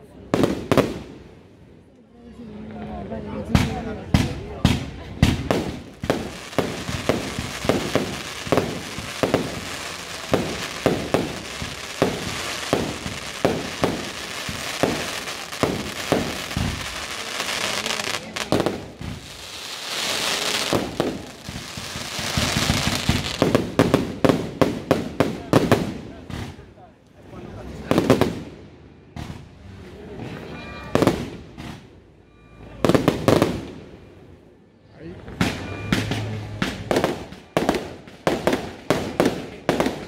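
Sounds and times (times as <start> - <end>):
fireworks hissing crackle: 5.3 - 26.6.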